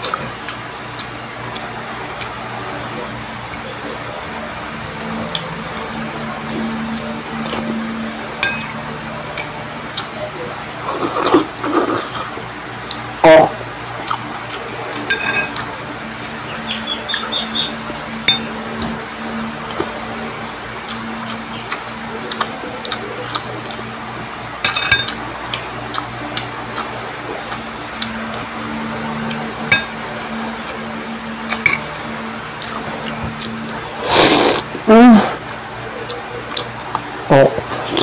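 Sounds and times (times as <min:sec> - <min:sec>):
chewing and mouth clicks: 0:00.0 - 0:02.4, 0:04.6 - 0:07.8, 0:08.6 - 0:10.2, 0:11.0 - 0:13.2, 0:13.9 - 0:24.0, 0:25.0 - 0:28.5, 0:29.2 - 0:29.5, 0:31.4 - 0:33.8, 0:36.0 - 0:38.0
low hum: 0:00.0 - 0:38.0.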